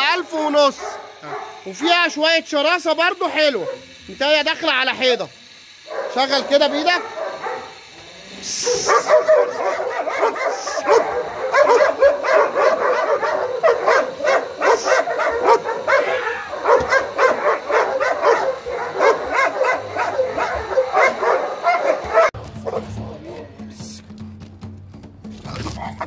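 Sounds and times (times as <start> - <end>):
dog barking rapidly: 0.0 - 2.3, 3.3 - 4.0, 5.9 - 7.9, 8.6 - 23.4.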